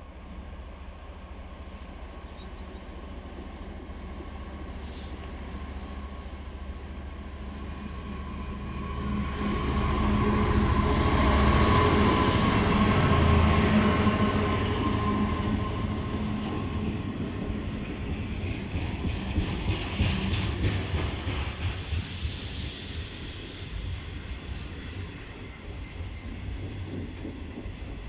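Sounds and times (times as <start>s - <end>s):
diesel locomotive engine: 0.0s - 28.0s
wheel squeal on rails: 4.9s - 10.3s.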